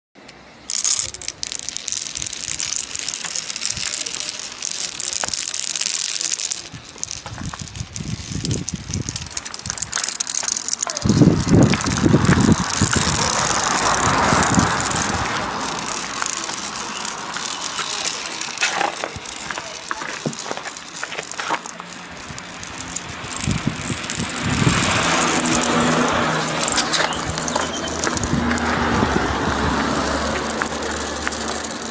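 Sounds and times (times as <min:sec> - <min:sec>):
marbles rolling down stone grooves: 0:00.3 - 0:31.9
deep rumbling bursts: 0:11.0 - 0:17.5, 0:22.0 - 0:31.8.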